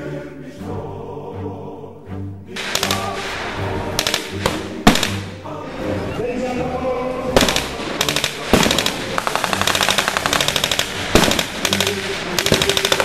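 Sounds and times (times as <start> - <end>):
automatic gunfire bursts: 7.4 - 13.0.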